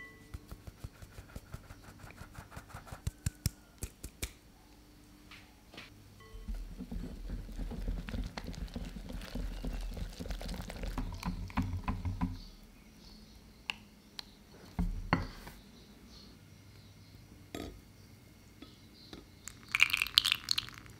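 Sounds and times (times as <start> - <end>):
whisk beating batter in bowl: 6.5 - 12.2.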